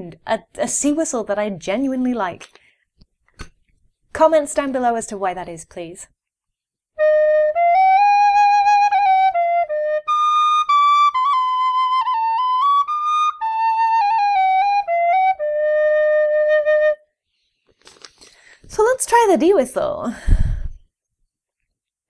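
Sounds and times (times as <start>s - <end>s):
tin whistle melody: 7.0s - 17.1s.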